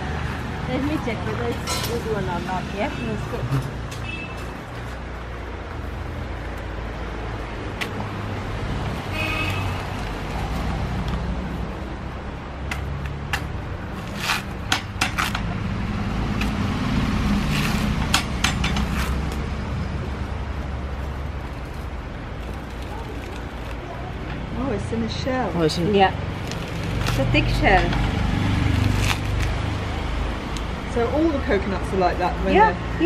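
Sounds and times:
coconut husk cracking: 21.4 - 24.0, 26.4 - 27.3, 28.6 - 29.7.

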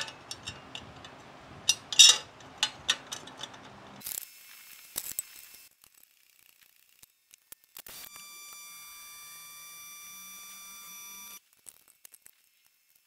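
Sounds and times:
metal parts clinking: 0.0 - 4.0.

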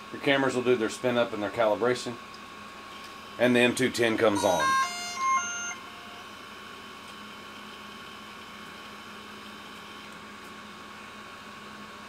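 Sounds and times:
faint hum with high tone: 0.0 - 12.0
electronic beeps: 4.4 - 6.3.

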